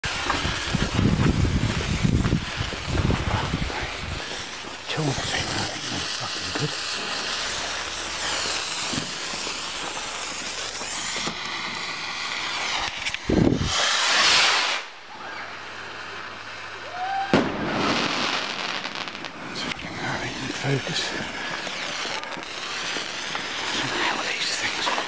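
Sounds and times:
rocket whooshing up: 0.0 - 4.6, 5.2 - 15.4, 17.0 - 24.0
firework crackling: 0.0 - 25.0
steady hiss: 0.0 - 25.0
firework bang: 6.5 - 14.9, 17.0 - 19.8.

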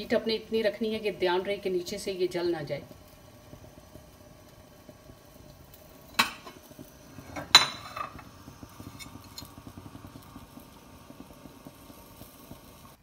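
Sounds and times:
faint crackle from pan: 0.0 - 13.0
glass lid clinking on pan: 7.3 - 8.3.

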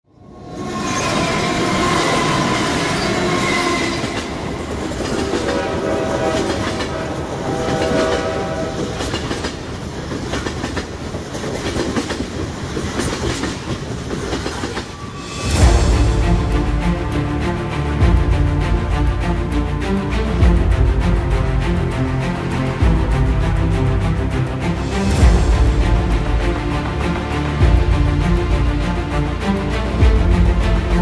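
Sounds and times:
train horn: 0.8 - 9.7
train wheels clacking on rail joints: 2.1 - 15.1
music: 15.1 - 31.0.

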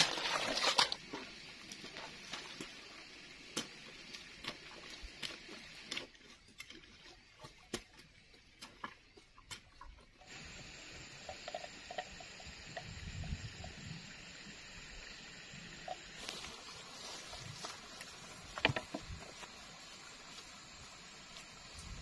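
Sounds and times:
steady outdoor hiss: 0.0 - 22.0
hoe chopping wet soil: 3.4 - 10.0.

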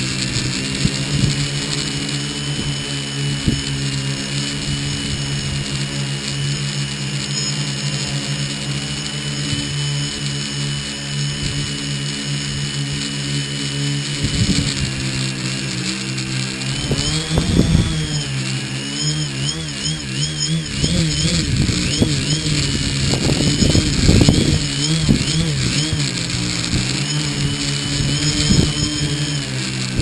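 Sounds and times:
wind rumble on microphone: 0.0 - 6.7, 14.0 - 15.4, 16.5 - 18.4, 19.7 - 30.0
drone motor whine: 0.0 - 30.0.

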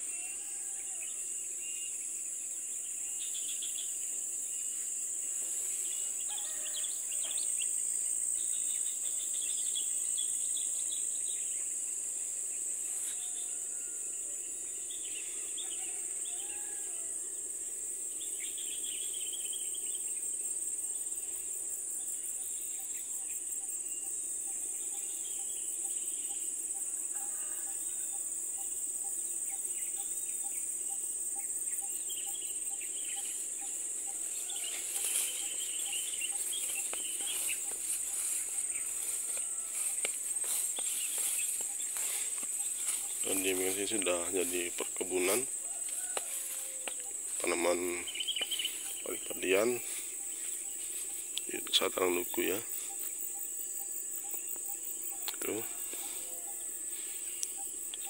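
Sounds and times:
buzzing chorus of insects: 0.0 - 58.0
bird chirps and calls: 46.0 - 50.5.

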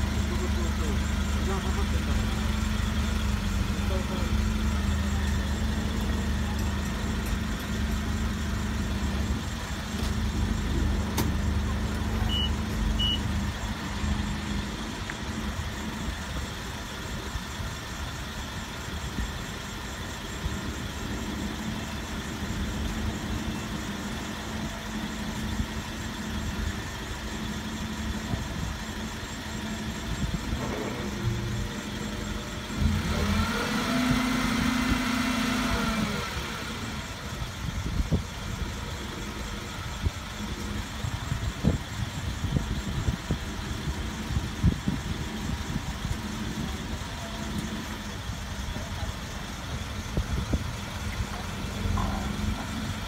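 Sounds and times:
forklift engine running: 0.0 - 53.0
short high beeps: 12.3 - 13.3.

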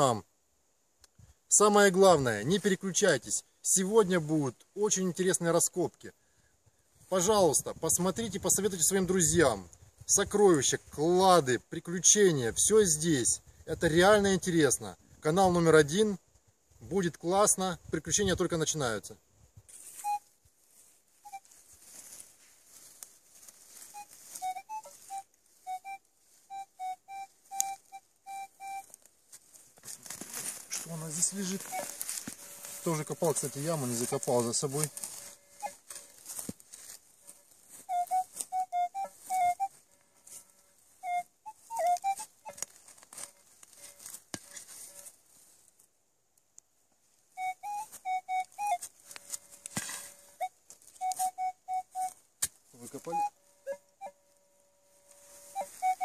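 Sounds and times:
metal detector beeps: 21.2 - 21.5, 23.9 - 28.9, 30.9 - 36.2, 37.9 - 39.7, 43.2 - 45.1, 47.4 - 52.2, 52.8 - 54.2, 55.0 - 56.0
metal detector held tone: 24.0 - 28.9, 30.8 - 36.3, 41.0 - 45.2
digging in soil: 28.9 - 38.5.

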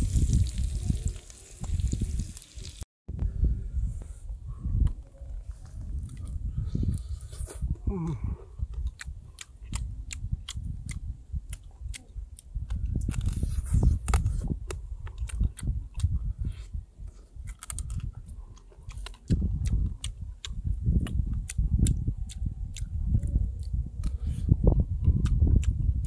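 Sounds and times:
person chewing and crunching food: 5.4 - 26.0.

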